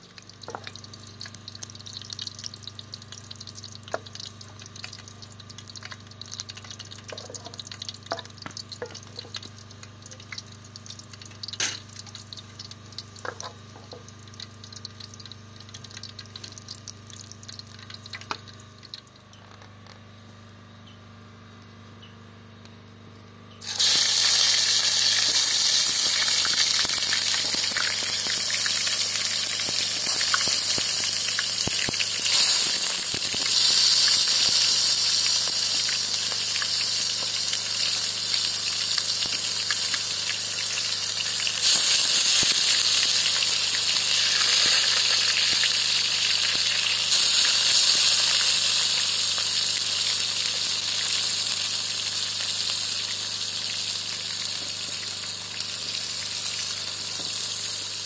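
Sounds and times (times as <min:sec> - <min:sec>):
low steady hum: 0:00.0 - 0:35.4
loud steady hiss: 0:23.6 - 0:55.2.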